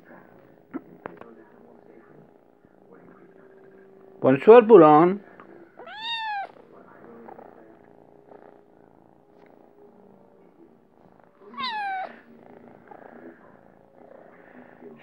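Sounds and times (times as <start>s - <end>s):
kitten purring: 0.0s - 4.4s, 5.2s - 15.0s
kitten mewing: 5.8s - 6.6s, 11.5s - 12.2s.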